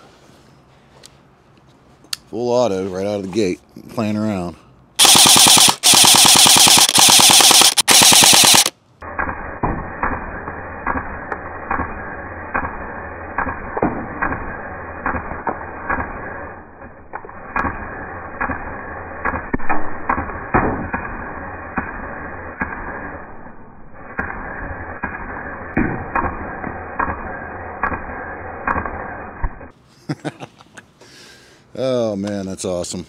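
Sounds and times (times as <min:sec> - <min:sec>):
electric bb rifle full-auto fire: 0:05.0 - 0:29.7.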